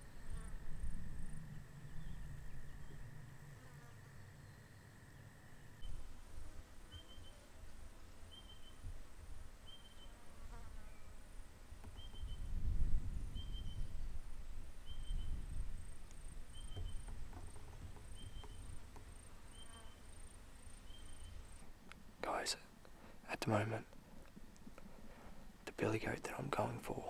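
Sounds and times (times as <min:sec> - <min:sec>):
wind rumble on microphone: 0:00.0 - 0:03.2, 0:11.8 - 0:19.0
insects chirping: 0:00.0 - 0:06.1, 0:14.8 - 0:21.7.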